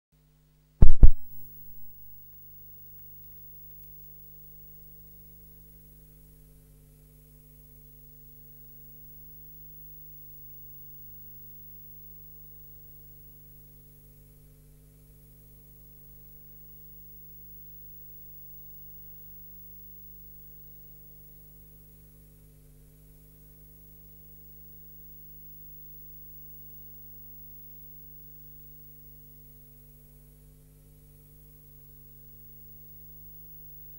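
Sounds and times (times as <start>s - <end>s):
faint steady hum: 0.2s - 33.9s
loud thump: 0.8s - 1.3s.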